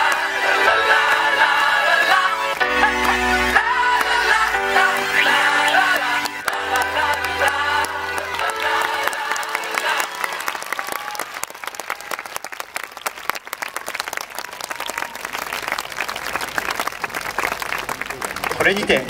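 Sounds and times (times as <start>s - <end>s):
dance music: 0.0s - 10.9s
audience applauding: 0.0s - 19.0s.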